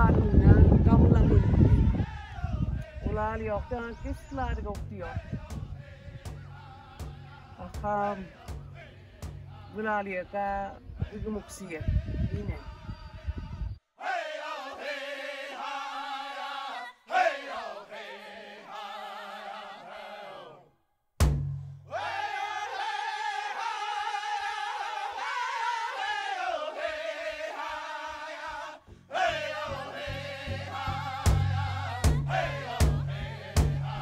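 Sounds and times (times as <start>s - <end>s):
low beat: 4.3s - 10.0s, 21.2s - 21.9s, 29.3s - 34.0s.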